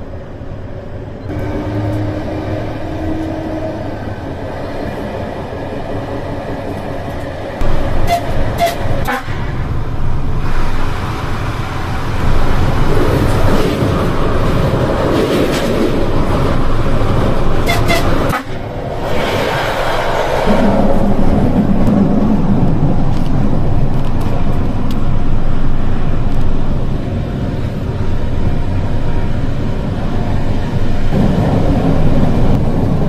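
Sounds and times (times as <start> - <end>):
electric train rumble: 0.0 - 33.0
short high train horn toots: 1.3 - 3.8, 8.0 - 9.4, 17.6 - 18.6.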